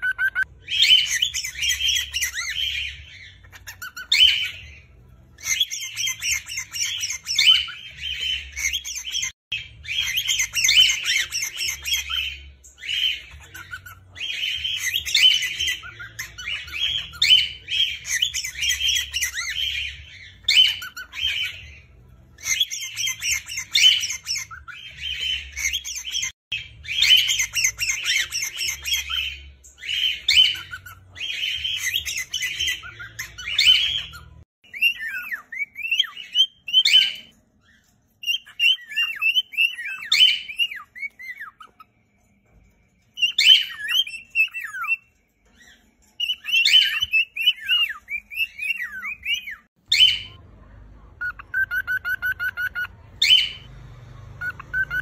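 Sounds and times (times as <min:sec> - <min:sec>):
cockatiels chattering and chirping: 0:00.0 - 0:50.5, 0:51.1 - 0:55.0
falling chirps: 0:51.2 - 0:55.0.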